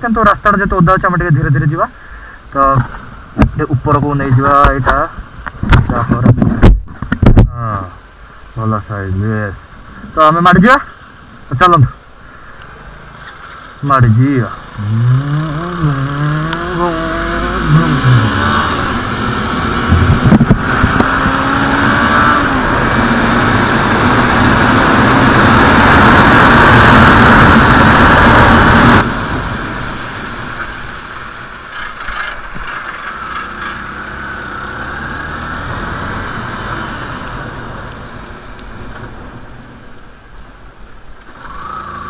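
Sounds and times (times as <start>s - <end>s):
road noise: 0.0s - 42.0s
motorcycle engine accelerating: 14.0s - 30.0s, 33.0s - 37.8s.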